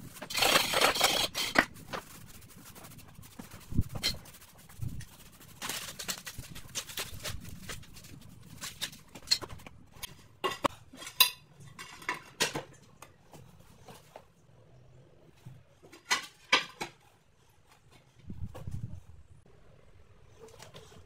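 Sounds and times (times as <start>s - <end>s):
brush sweeping concrete floor: 0.0s - 8.8s.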